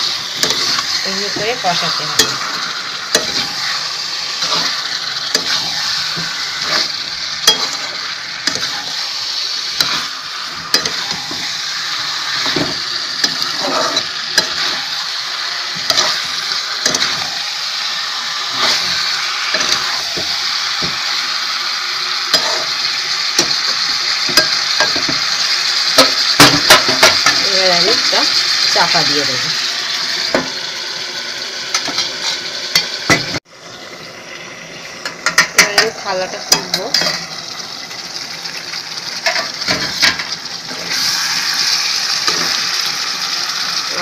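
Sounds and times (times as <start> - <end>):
food sizzling in oil: 0.0 - 44.0
metal spatula scraping: 0.2 - 15.1, 15.7 - 17.4, 18.4 - 21.0, 22.3 - 25.2, 35.3 - 37.3, 39.2 - 42.8.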